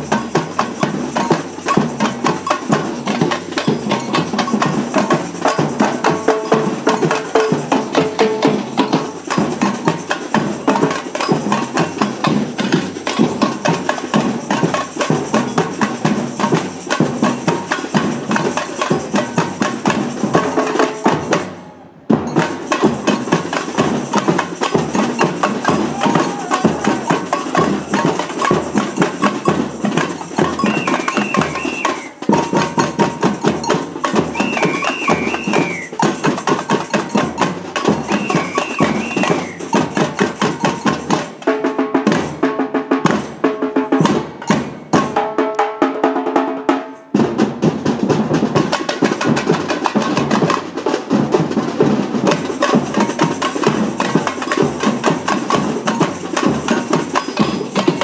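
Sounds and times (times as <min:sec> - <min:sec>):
samba percussion group: 0:00.0 - 0:58.0
high warbling call: 0:30.6 - 0:32.2.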